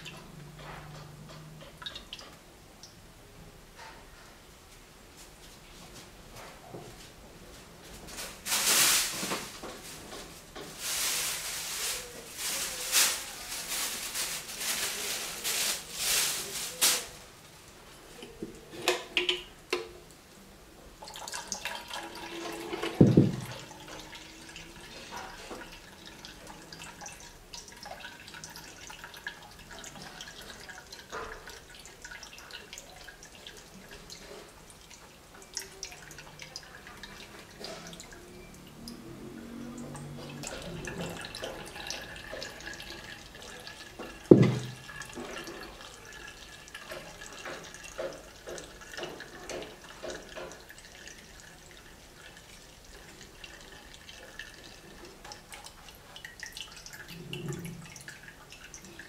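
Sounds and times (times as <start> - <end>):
liquid pouring and splashing: 8.0 - 17.2, 21.0 - 59.0
knock: 23.0 - 23.5, 44.3 - 44.8.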